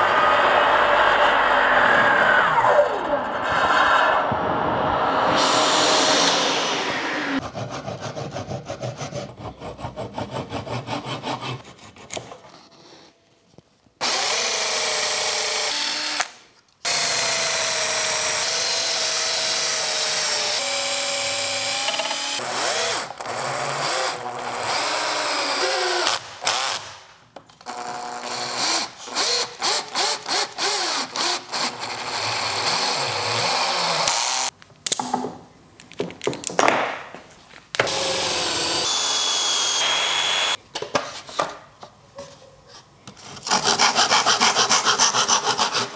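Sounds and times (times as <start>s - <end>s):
handsaw cutting wood: 7.4s - 12.2s, 43.4s - 45.9s.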